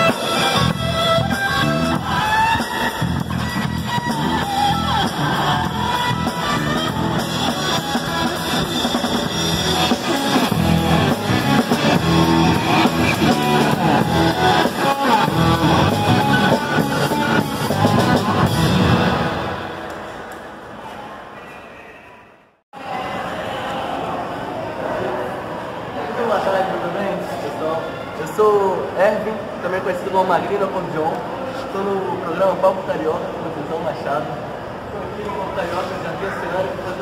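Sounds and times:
drum kit with cymbals: 0:00.0 - 0:19.2
electric guitar: 0:00.0 - 0:20.2.

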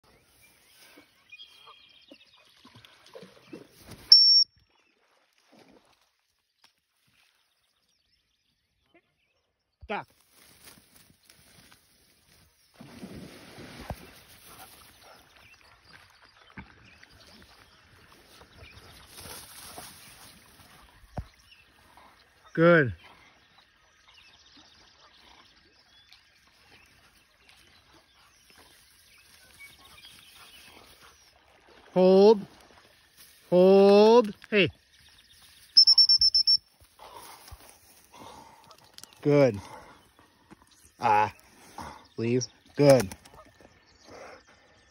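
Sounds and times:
distant bird chirps: 0:00.0 - 0:05.1, 0:32.8 - 0:44.9
high-pitched whistle blast: 0:04.1 - 0:04.5, 0:35.8 - 0:36.6
soft high tones: 0:35.8 - 0:36.6.

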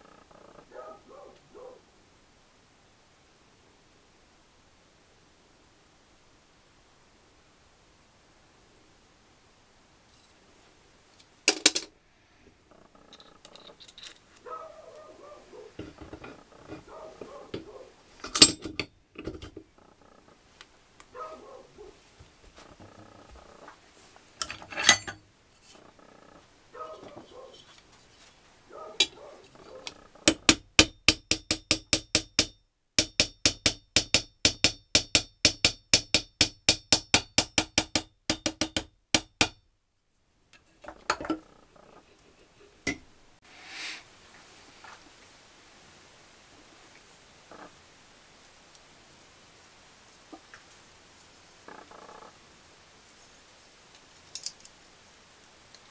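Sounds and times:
metal parts clinking: 0:13.0 - 0:14.5, 0:18.2 - 0:19.6, 0:24.4 - 0:25.8, 0:54.0 - 0:54.8
hammer tapping on metal bar: 0:30.3 - 0:39.6.

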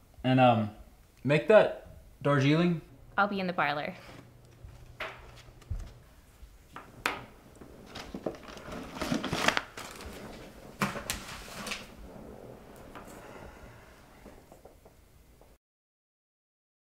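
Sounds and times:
papers rustling and crinkling: 0:04.0 - 0:14.9.

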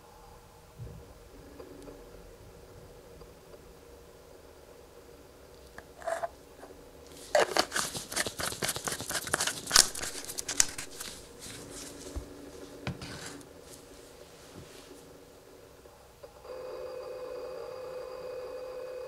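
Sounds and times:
plastic screw cap clicking: 0:05.8 - 0:06.3, 0:07.2 - 0:11.2.

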